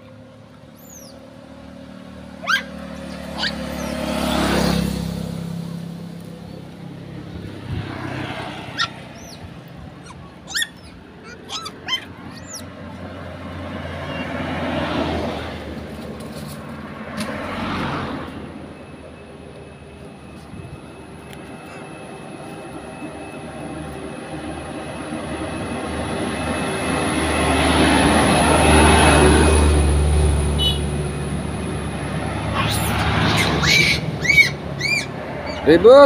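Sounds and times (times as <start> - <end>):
vehicles passing on road: 0.0 - 36.0
monkeys squealing: 0.8 - 1.2, 2.4 - 4.6, 8.7 - 14.5, 32.4 - 35.8.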